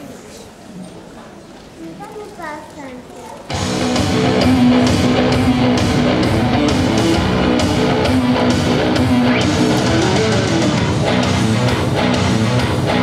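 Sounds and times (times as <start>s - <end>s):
loud rock music: 3.5s - 13.0s.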